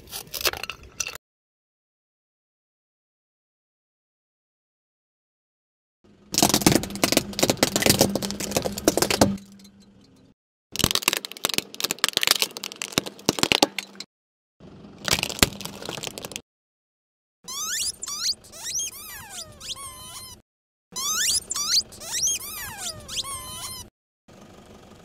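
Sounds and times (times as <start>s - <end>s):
plastic toys crunching under tyre: 0.0s - 1.1s, 6.4s - 9.4s, 10.8s - 14.0s, 15.0s - 16.4s.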